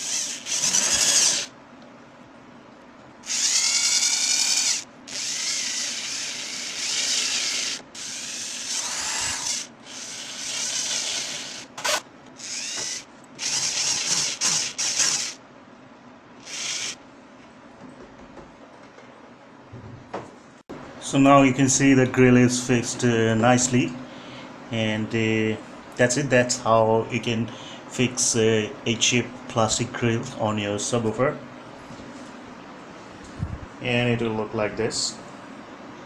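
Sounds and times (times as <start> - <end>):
cordless drill whining: 0.0 - 1.5, 3.2 - 15.4, 16.4 - 17.0.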